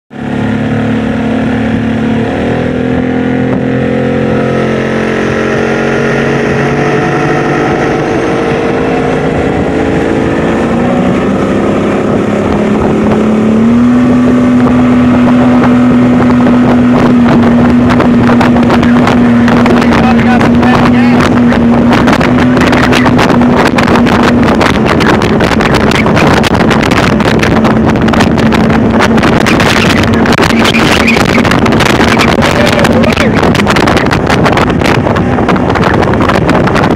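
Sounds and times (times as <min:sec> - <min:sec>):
outboard motor running: 0:00.1 - 0:36.9
wind buffeting microphone: 0:00.2 - 0:36.9.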